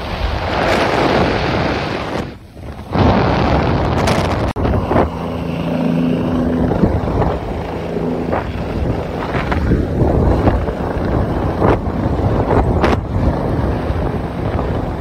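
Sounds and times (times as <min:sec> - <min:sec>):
wind buffeting microphone: 0:00.0 - 0:15.0
steady low hum: 0:02.0 - 0:15.0
helicopter engine and rotor: 0:02.1 - 0:15.0.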